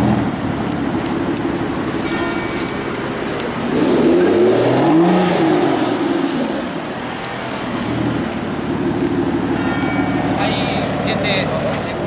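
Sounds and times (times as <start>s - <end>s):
car engine revving from idle: 3.6s - 6.8s.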